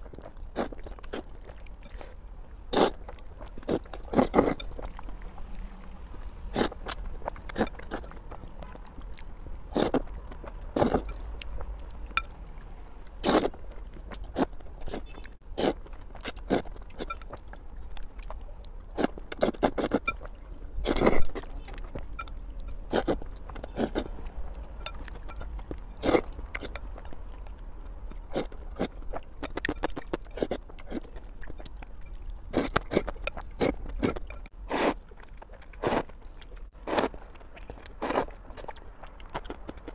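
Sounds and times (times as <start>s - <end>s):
slurping and chewing noodles: 0.0s - 39.9s.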